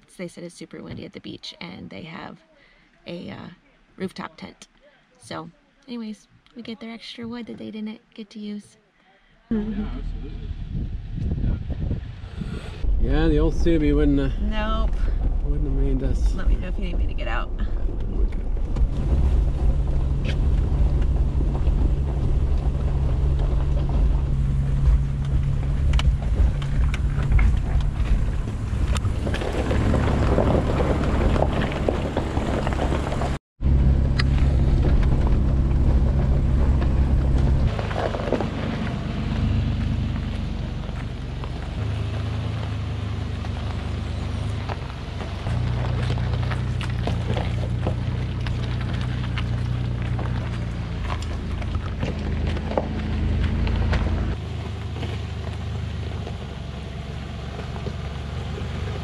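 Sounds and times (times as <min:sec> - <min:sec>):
truck engine at low revs: 0:09.5 - 0:59.0
tyres crunching over rough ground: 0:12.4 - 0:59.0.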